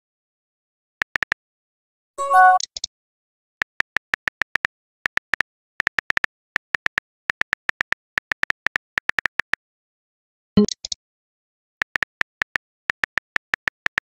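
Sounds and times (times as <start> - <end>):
keyboard typing clicks: 10.6 - 11.0, 11.8 - 14.0.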